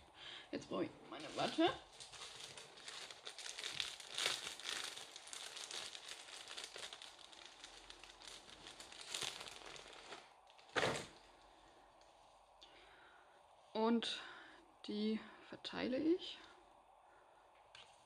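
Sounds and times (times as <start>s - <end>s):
plastic packaging crinkling: 1.2s - 11.3s.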